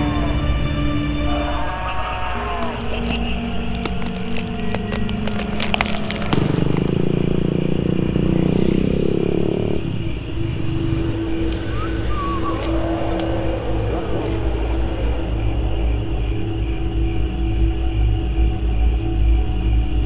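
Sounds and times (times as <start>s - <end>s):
steady low drone: 0.0s - 20.0s
sharp crackling clicks: 2.5s - 7.3s.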